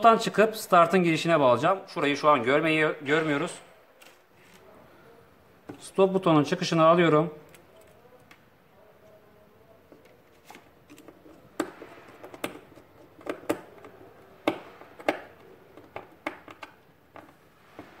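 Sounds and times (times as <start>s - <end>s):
clicks and knocks of handled parts: 9.9s - 18.0s.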